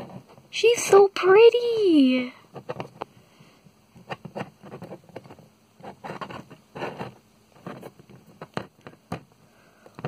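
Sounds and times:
fingers rubbing near microphone: 4.0s - 9.2s.

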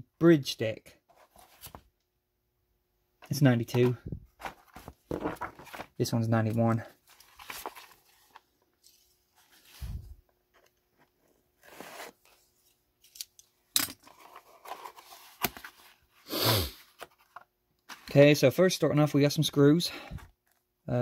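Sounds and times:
cardboard box scrapes and rustles: 11.6s - 12.3s.

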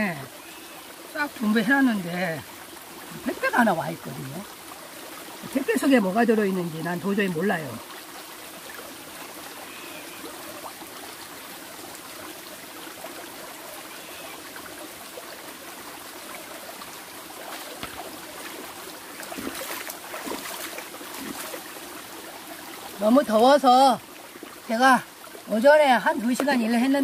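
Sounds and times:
stream trickling over rocks: 0.0s - 27.0s
hands splashing in water: 17.4s - 18.6s, 19.2s - 21.6s.

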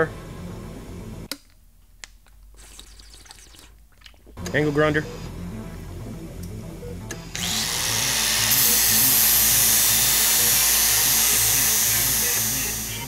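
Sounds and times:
angle grinder cutting metal: 7.3s - 13.0s.

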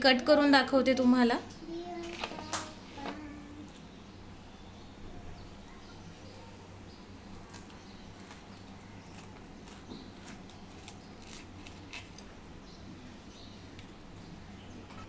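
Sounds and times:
low steady hum: 0.0s - 15.0s
knife crunching through toast: 7.4s - 12.4s.

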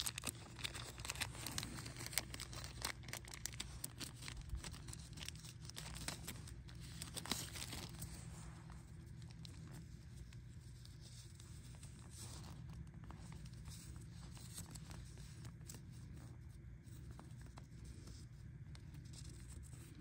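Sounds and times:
plastic bag crinkling: 0.0s - 9.9s
paper being unfolded: 0.0s - 20.0s
steady low hum: 0.0s - 20.0s.

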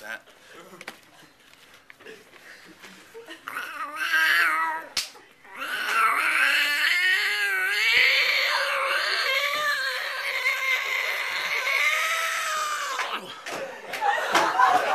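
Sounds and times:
man imitating cat yowl: 3.5s - 13.4s.

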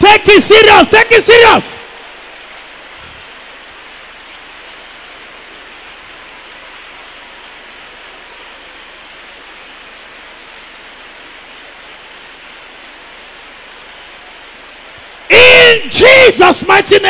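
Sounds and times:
steady hiss-like noise: 0.0s - 17.0s.

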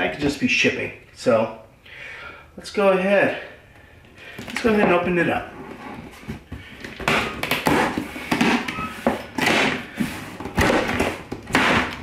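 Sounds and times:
cardboard tearing and scraping: 7.0s - 12.0s.

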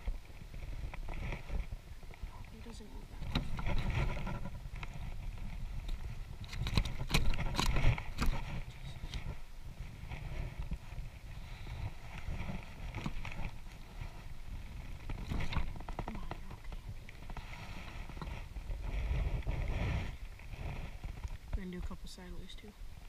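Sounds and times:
clothing rubbing on microphone: 0.0s - 23.0s
wind rumble on microphone: 0.0s - 23.0s.

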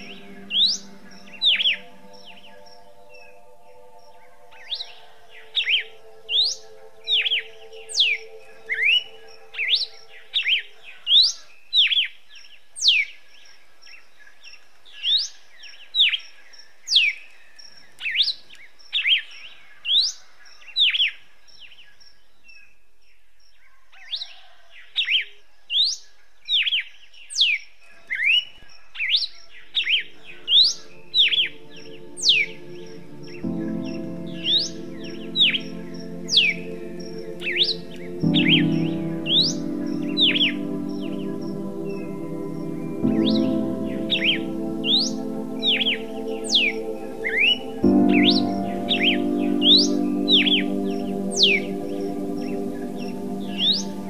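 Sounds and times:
soft sustained music chords: 0.0s - 12.0s, 30.0s - 54.0s.

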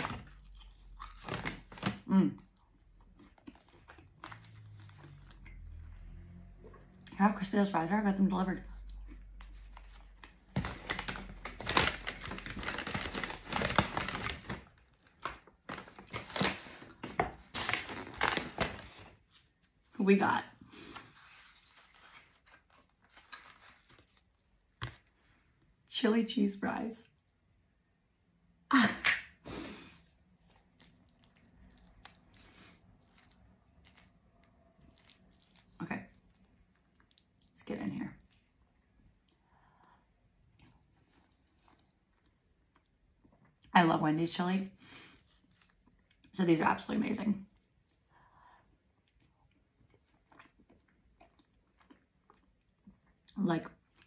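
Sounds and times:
paper bag rustling: 9.7s - 19.4s.

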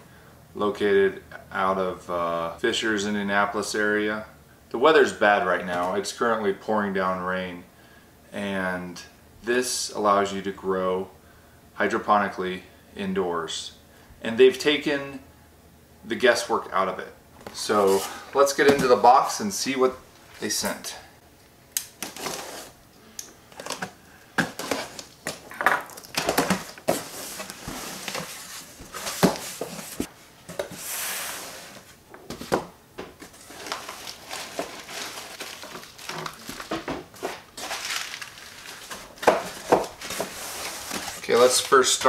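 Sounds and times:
packing paper rustling and crinkling: 22.0s - 22.8s, 23.5s - 32.6s, 33.2s - 42.0s
cardboard knocks and scrapes: 26.2s - 30.8s.

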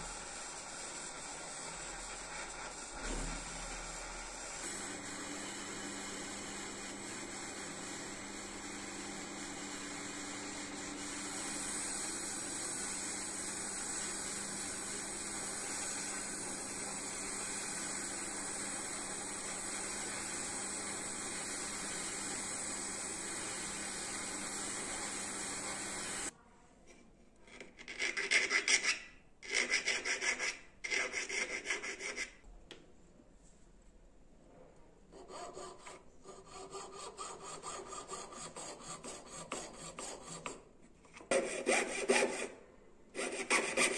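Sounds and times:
gas torch hissing: 9.4s - 26.3s
saw rasping through metal: 35.2s - 40.6s, 41.3s - 42.6s, 43.2s - 43.9s.

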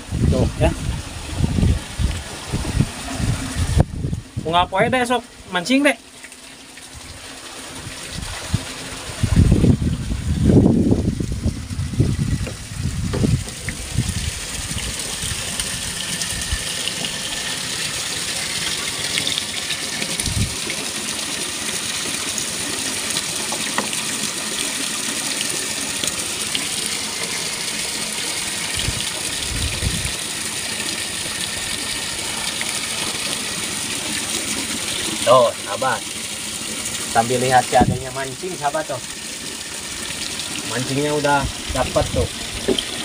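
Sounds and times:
water gushing: 0.0s - 43.0s
dull low thuds: 9.3s - 14.2s.

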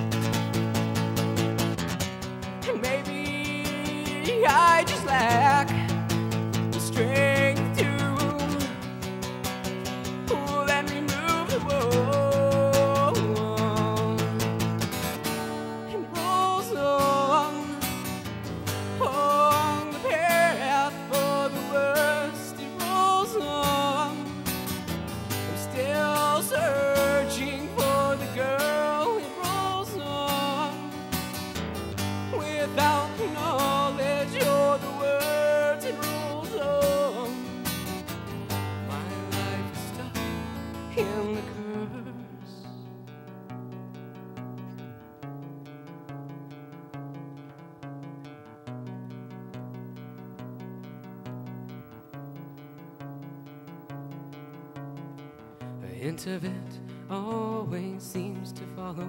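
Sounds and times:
fingerpicked acoustic guitar: 0.0s - 59.0s
man singing: 2.6s - 9.1s, 10.0s - 14.8s, 15.8s - 24.5s, 25.3s - 31.1s, 32.2s - 43.1s, 55.6s - 59.0s.

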